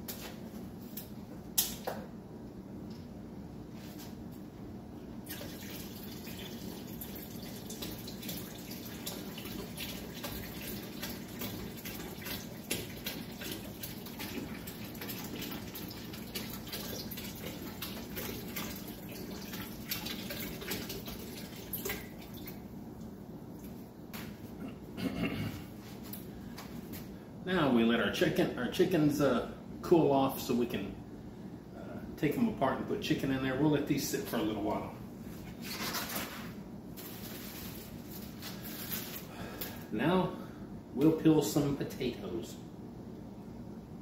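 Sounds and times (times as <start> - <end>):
liquid pouring into metal pot: 5.3 - 22.6.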